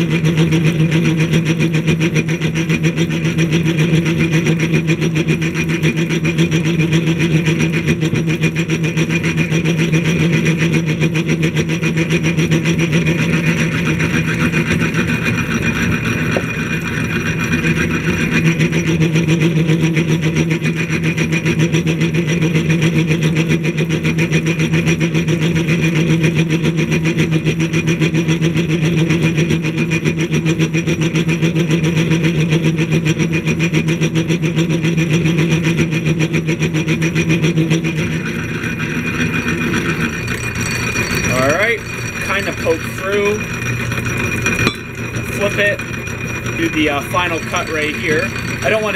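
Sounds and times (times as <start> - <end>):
drill press humming: 38.1 - 48.9
drill bit cutting steel: 38.2 - 48.9.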